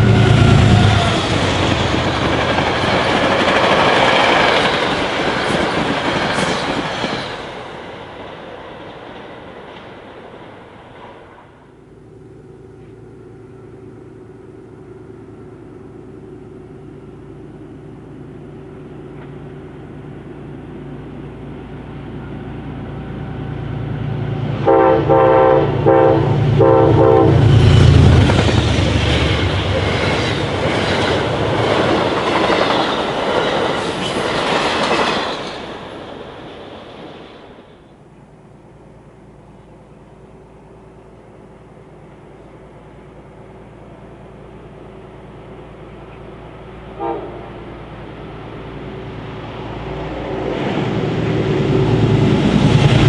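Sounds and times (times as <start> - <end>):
train horn blasts: 0.0 - 1.5, 24.6 - 28.2, 46.9 - 47.7
train wheel clatter: 0.0 - 11.5, 27.5 - 37.7
train running drone: 0.0 - 53.0.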